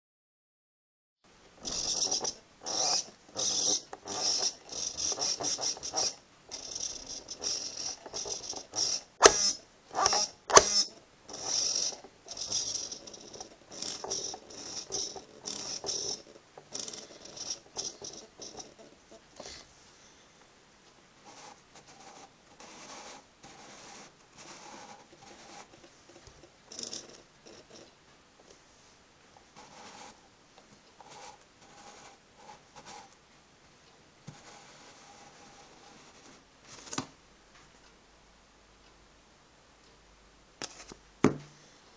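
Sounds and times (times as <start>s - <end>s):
servo gears whirring: 1.6s - 18.7s.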